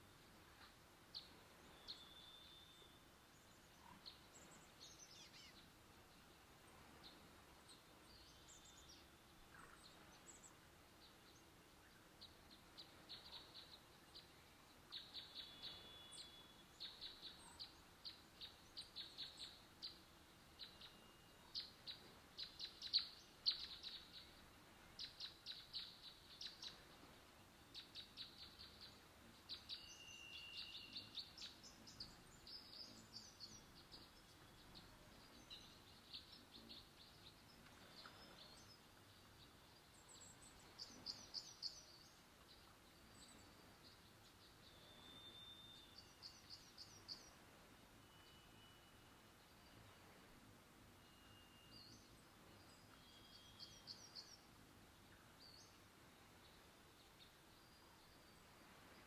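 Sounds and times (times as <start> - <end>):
small songbirds chirping: 0.0 - 59.0
short whistled bird notes: 29.8 - 31.2, 44.7 - 46.4, 48.0 - 49.1, 51.0 - 52.1.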